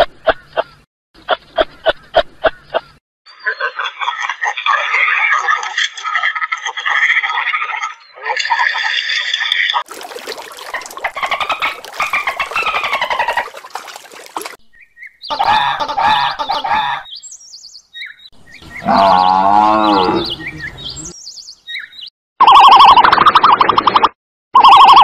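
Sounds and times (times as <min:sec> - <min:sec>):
wavering animal calls: 0:18.6 - 0:21.2.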